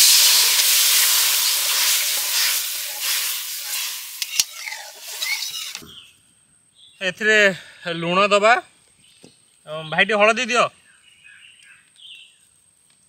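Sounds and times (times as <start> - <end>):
paste sizzling in hot oil: 0.0 - 5.8.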